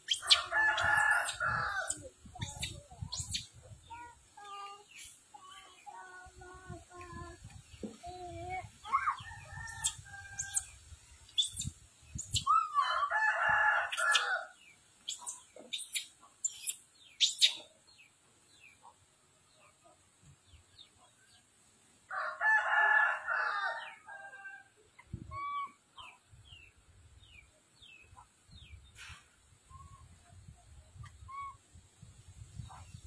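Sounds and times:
rooster crowing: 0:00.3 - 0:01.9, 0:12.8 - 0:14.5, 0:22.1 - 0:24.7.

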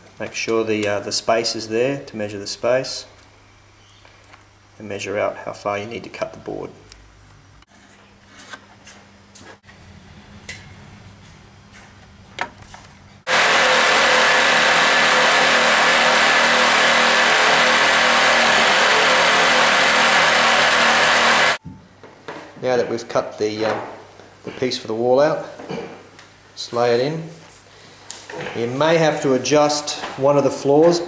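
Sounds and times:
electric jigsaw cutting floorboard: 0:13.3 - 0:21.6.

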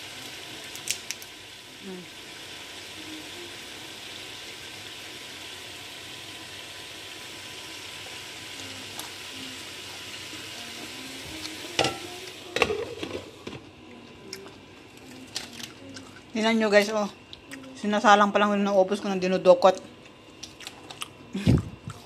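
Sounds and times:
peanuts sizzling in a pan: 0:00.0 - 0:13.7.

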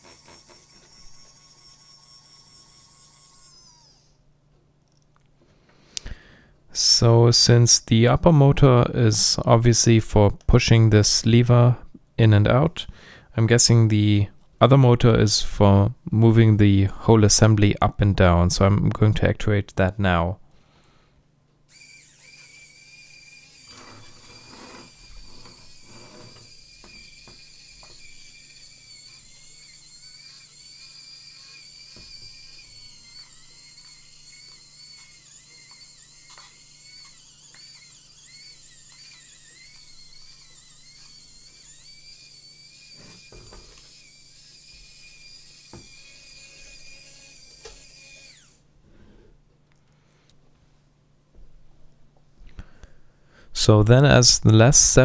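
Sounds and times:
small motor whining: 0:00.0 - 0:04.2, 0:21.7 - 0:48.6.

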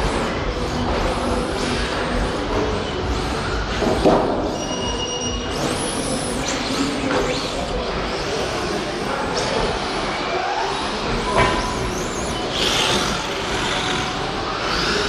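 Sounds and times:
tyre and room noise: 0:09.2 - 0:15.0
electric rc car motors whining: 0:10.9 - 0:15.0.

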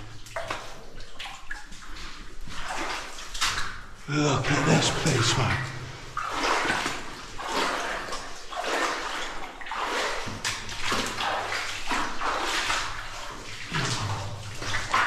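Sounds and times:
boots sloshing through water: 0:05.5 - 0:15.0.

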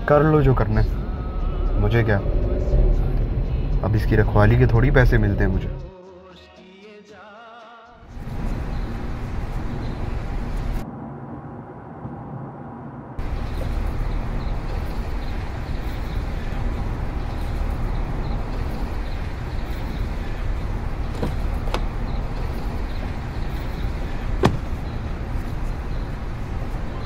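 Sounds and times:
street traffic noise: 0:00.0 - 0:05.8, 0:08.1 - 0:27.0.

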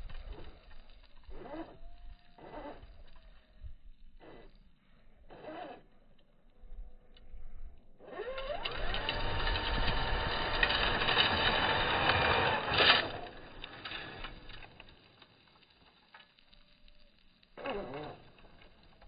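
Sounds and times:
wheels in dirt: 0:00.0 - 0:19.0
electric motor whining: 0:05.3 - 0:05.9, 0:08.0 - 0:14.6, 0:17.6 - 0:18.4.

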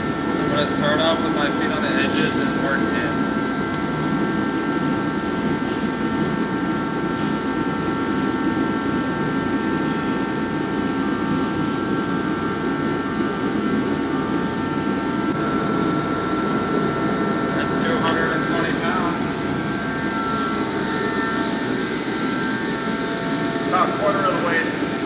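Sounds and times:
large fan whirring: 0:00.0 - 0:25.0
faint constant tones: 0:13.7 - 0:25.0.

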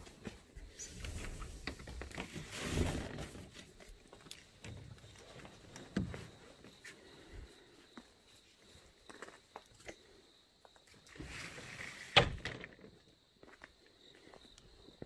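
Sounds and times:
footsteps on flagstone path: 0:12.9 - 0:15.0.

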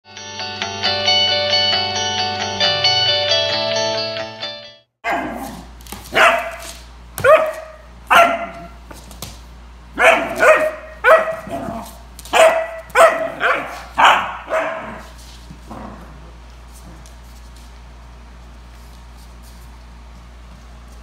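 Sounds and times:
puppy barking: 0:05.0 - 0:08.8, 0:10.0 - 0:15.1.

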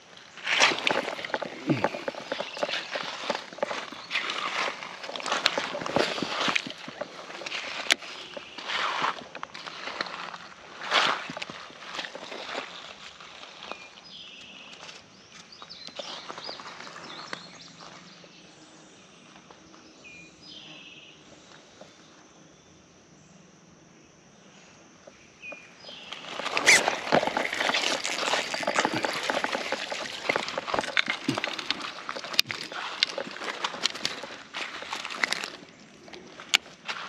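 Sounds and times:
footsteps crunching on gravel: 0:00.0 - 0:14.8, 0:15.7 - 0:18.1, 0:25.8 - 0:37.0.

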